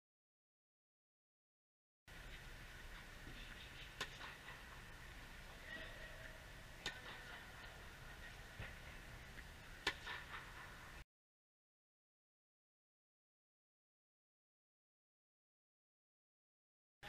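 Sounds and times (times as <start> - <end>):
low hum of hall: 2.1 - 11.0
racket hitting tennis ball: 3.3 - 4.8, 9.8 - 10.7
tennis ball bouncing: 3.3 - 4.8, 9.8 - 10.7.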